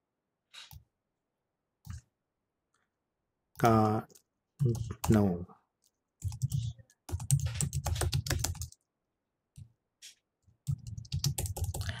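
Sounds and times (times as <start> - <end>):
fast keyboard typing: 4.6 - 5.2, 6.2 - 8.8, 10.6 - 12.0.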